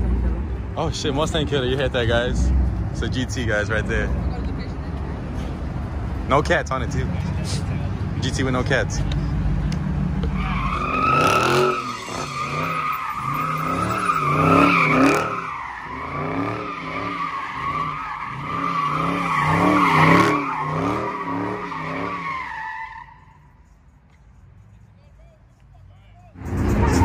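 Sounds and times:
car engine revving: 0.0 - 22.6, 26.4 - 27.0
tyres squealing: 10.2 - 23.5.

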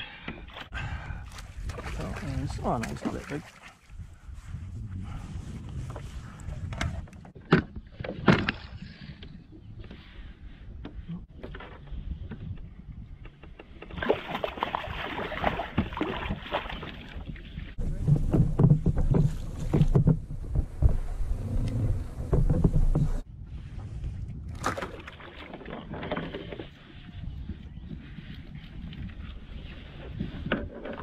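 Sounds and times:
water splashing: 1.3 - 3.9, 14.0 - 17.6
knocks against a plastic hull: 17.9 - 21.0.

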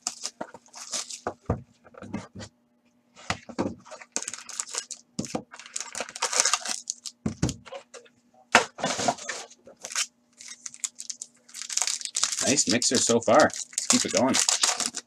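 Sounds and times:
plastic wrap crinkling and tearing: 0.0 - 1.2, 3.8 - 7.8, 9.1 - 15.0.

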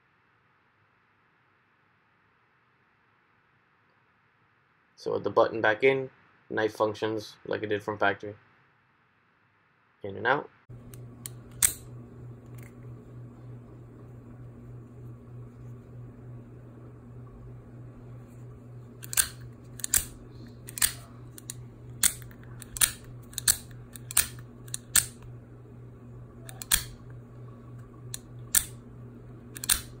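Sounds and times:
faint steady hum: 0.0 - 30.0
knife blade metallic clicks: 19.0 - 25.2.

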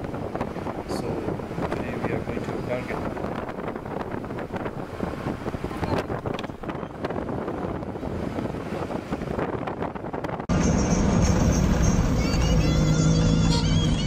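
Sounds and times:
wind buffeting microphone: 0.0 - 11.4.

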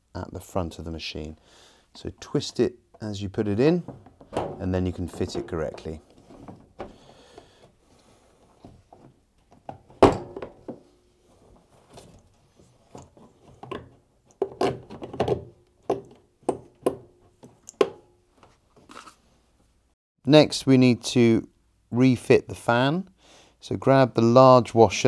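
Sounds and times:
heavy plastic thunk: 3.8 - 5.4
plastic cover knocking and clicking: 13.6 - 17.1.

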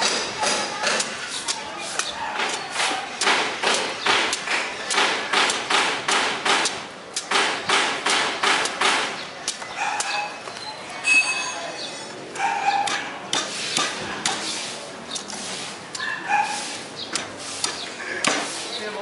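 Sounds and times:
machete chopping coconut husk: 0.0 - 10.3, 12.3 - 18.7.

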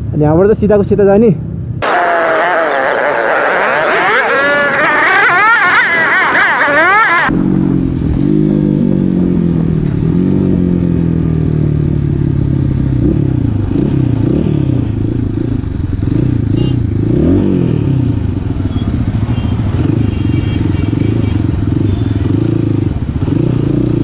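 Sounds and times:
dirt bike engine: 1.8 - 9.1.

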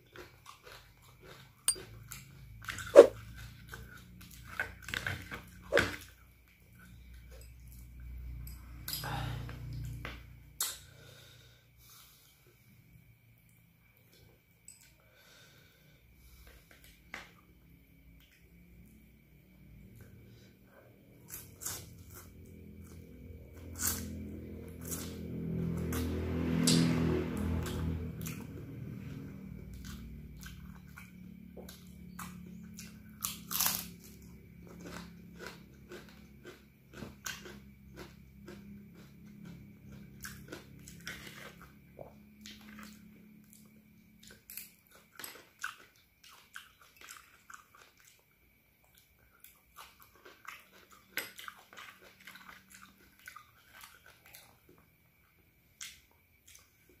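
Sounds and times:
person chewing crunchy noodles: 0.0 - 7.8, 21.2 - 26.0, 27.6 - 54.8
faint low hum: 0.0 - 57.0.

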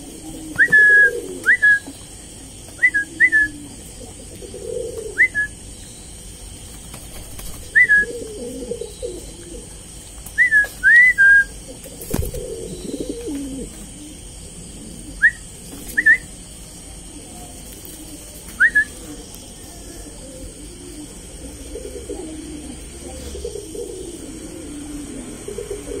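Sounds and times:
pigeon cooing: 0.0 - 5.7, 7.2 - 16.4, 17.1 - 26.0
high chirp-like whistles: 0.6 - 2.0, 2.8 - 3.6, 5.2 - 6.1, 7.6 - 9.2, 10.4 - 11.6, 15.2 - 16.3, 18.6 - 19.2.

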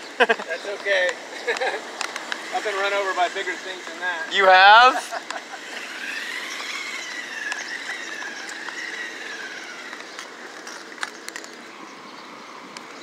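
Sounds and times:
toy car electric motor whining: 1.5 - 11.6.

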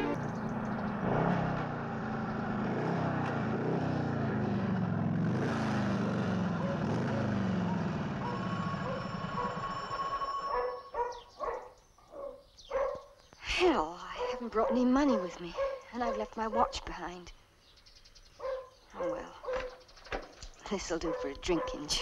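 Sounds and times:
motorcycle engine approaching: 0.0 - 11.3
dog barking: 6.6 - 6.8, 7.5 - 9.6, 10.5 - 13.2, 14.1 - 16.9, 18.4 - 19.8, 21.0 - 22.0.

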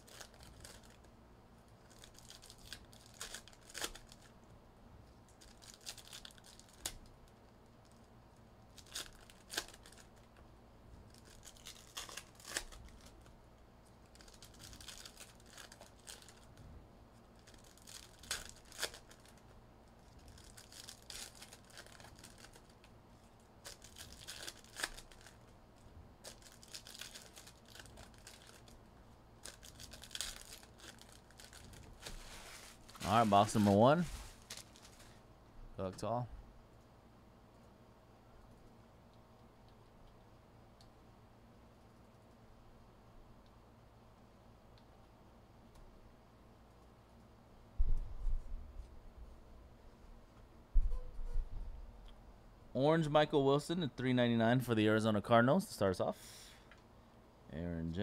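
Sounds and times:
plastic wrapping crinkling and tearing: 0.0 - 1.1, 1.8 - 4.3, 5.3 - 7.1, 8.7 - 10.3, 11.1 - 13.3, 14.0 - 16.6, 17.3 - 22.9, 23.6 - 25.5, 26.2 - 28.8, 29.4 - 35.2.

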